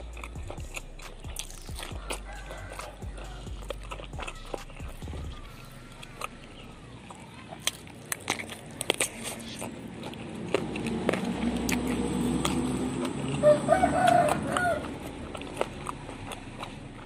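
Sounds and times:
crunching and chewing berries: 0.0s - 17.0s
rooster crowing: 1.8s - 6.8s, 13.4s - 15.0s.

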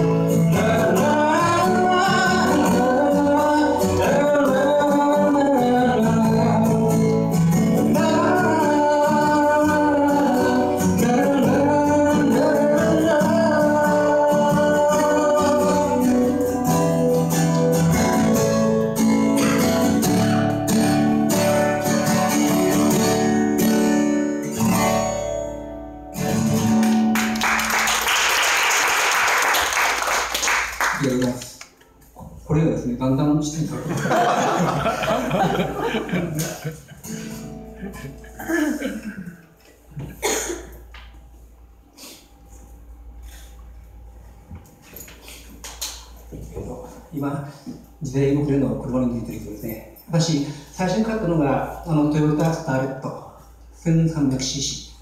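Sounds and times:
man singing: 0.0s - 16.7s
acoustic guitar playing: 0.0s - 32.4s, 33.5s - 44.9s
audience applause: 26.8s - 31.5s.

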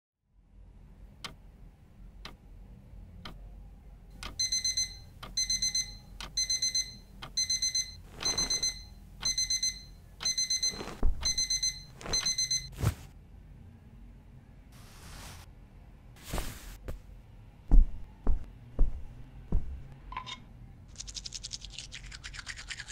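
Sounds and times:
alarm clock ticking: 4.2s - 12.7s
alarm beeping high tones: 4.4s - 12.8s
bedding rustling: 10.6s - 13.1s, 16.2s - 17.1s.

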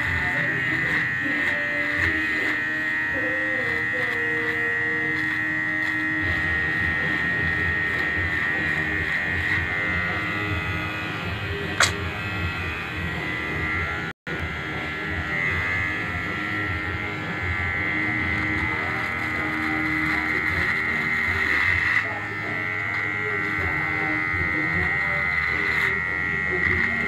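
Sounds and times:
electric hair clipper buzzing: 0.0s - 27.0s
sharp click: 11.8s - 12.0s.

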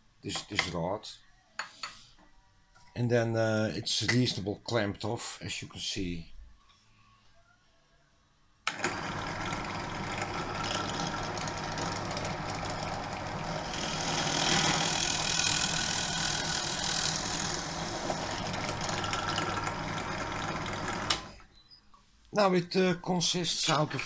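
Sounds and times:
drill press motor hum: 8.7s - 21.5s
drill bit boring through wood: 8.8s - 21.3s.

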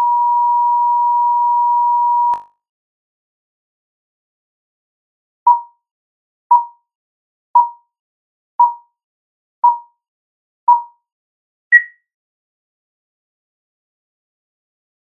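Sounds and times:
higher-pitched beep: 0.0s - 2.4s, 11.7s - 12.0s
countdown beeps: 7.6s - 7.8s, 8.6s - 8.8s, 9.6s - 9.8s, 10.7s - 10.9s.

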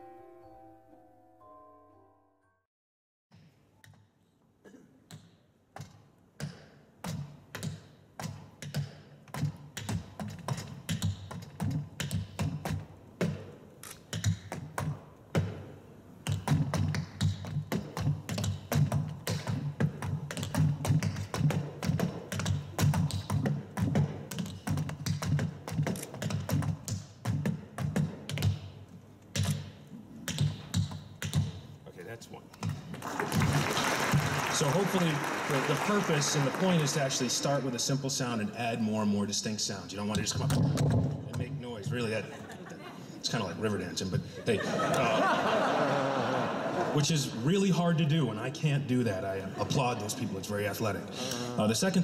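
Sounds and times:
tap shoes on wooden board: 5.8s - 15.6s, 16.2s - 29.7s.

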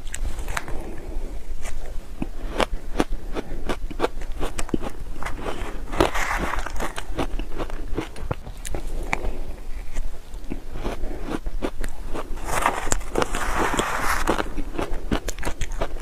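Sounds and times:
ice crunching between teeth: 1.6s - 16.0s
metal spoon scraping ice: 12.4s - 14.6s.

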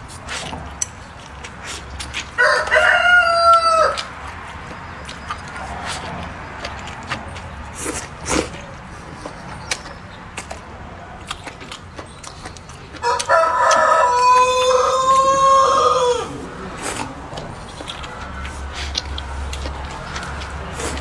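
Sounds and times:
rooster crowing: 2.4s - 4.1s, 13.0s - 16.5s.

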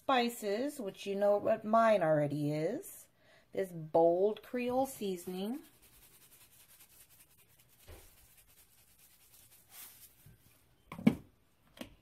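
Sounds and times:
spice shaker rattling: 5.2s - 10.2s.

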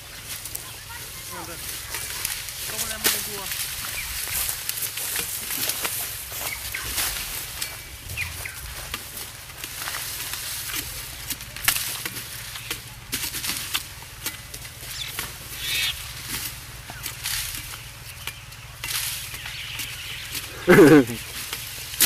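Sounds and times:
dry leaves rustling: 0.0s - 22.0s
knives chopping sugarcane: 1.9s - 3.9s, 8.9s - 15.4s, 16.2s - 22.0s.

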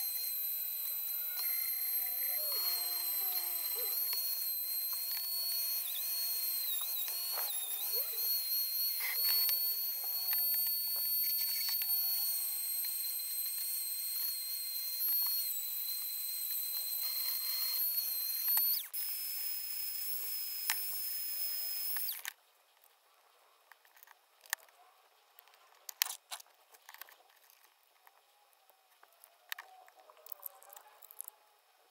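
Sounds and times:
rotary tool grinding metal: 0.0s - 22.4s.

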